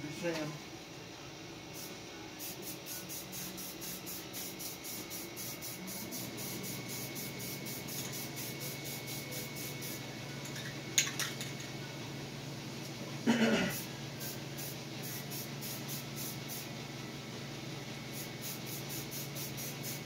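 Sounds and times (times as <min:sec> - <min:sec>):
spray paint can hissing: 0:01.8 - 0:10.0, 0:13.8 - 0:16.7, 0:18.1 - 0:20.0.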